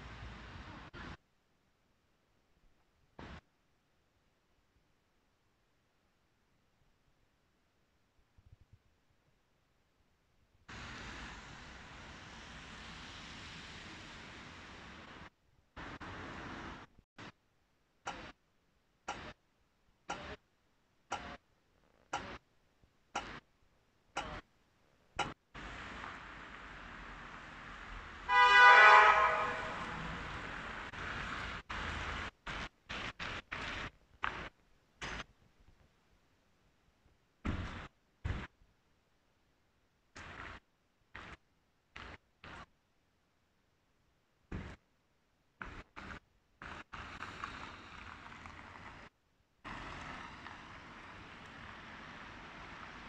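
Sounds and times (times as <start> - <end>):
traffic on a wet road: 0.0 - 1.2, 10.7 - 17.3, 25.2 - 34.5, 45.6 - 53.0
street background noise: 0.0 - 1.4, 20.0 - 36.1
loud brassy horn blast: 28.3 - 30.4.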